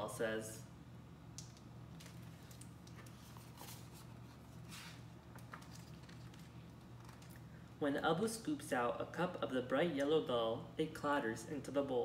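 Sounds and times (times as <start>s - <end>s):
steady low hum: 0.0s - 12.0s
book pages rustling: 2.0s - 7.4s.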